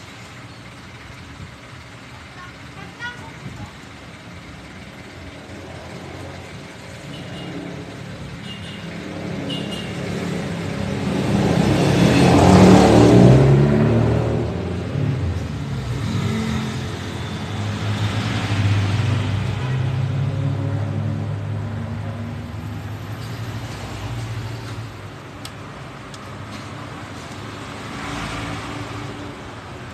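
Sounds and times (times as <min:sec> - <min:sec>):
motor vehicle passing: 0:08.9 - 0:25.7.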